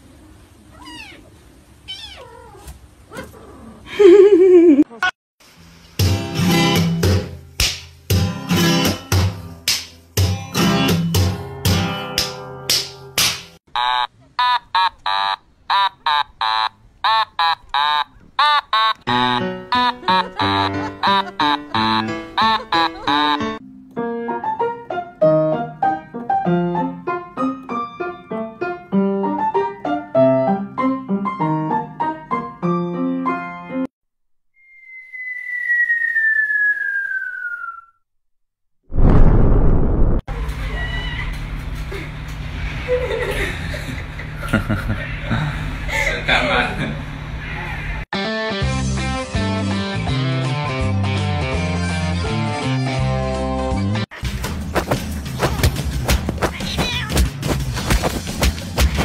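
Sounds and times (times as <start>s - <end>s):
cat meowing: 0.7s - 3.4s, 56.5s - 57.2s
acoustic guitar music: 19.1s - 24.2s
piano playing slow melody: 19.1s - 33.9s.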